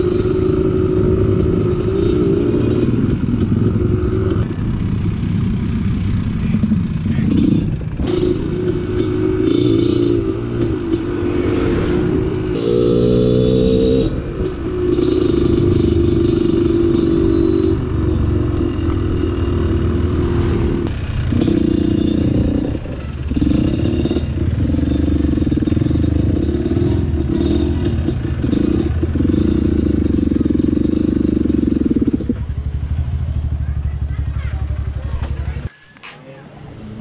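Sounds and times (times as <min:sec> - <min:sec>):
motorcycle engine revving: 0:00.0 - 0:35.7.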